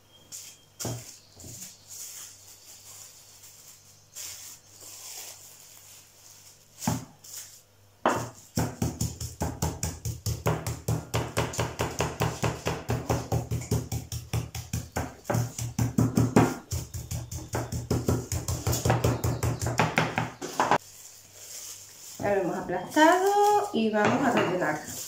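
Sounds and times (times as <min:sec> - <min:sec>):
pestle pounding meat on wooden board: 0:08.1 - 0:20.8.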